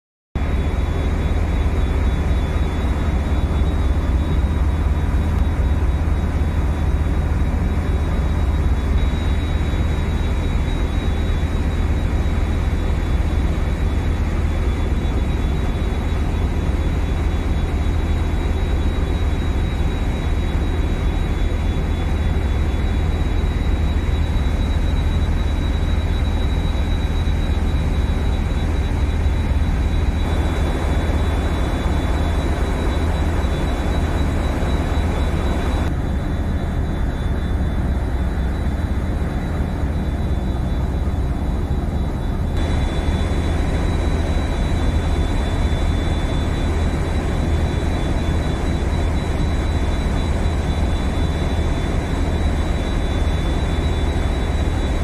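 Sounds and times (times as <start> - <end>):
boat engine drone: 0.4 - 55.0
faint high whine: 0.4 - 55.0.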